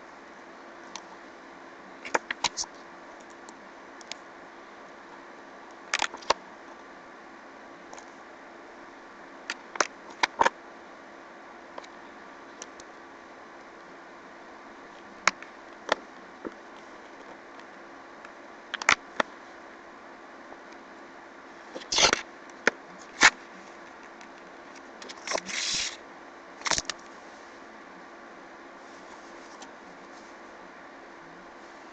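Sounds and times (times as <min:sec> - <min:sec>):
steady low hiss: 0:00.0 - 0:31.9
book pages turning: 0:21.8 - 0:22.2, 0:25.0 - 0:26.0, 0:26.6 - 0:27.1.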